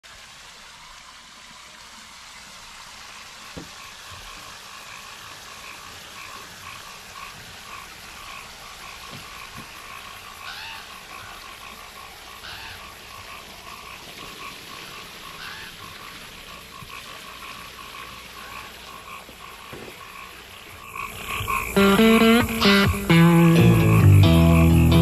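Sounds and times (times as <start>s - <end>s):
soft knocks: 19.7s - 20.1s
pulsing animal call: 20.8s - 25.0s.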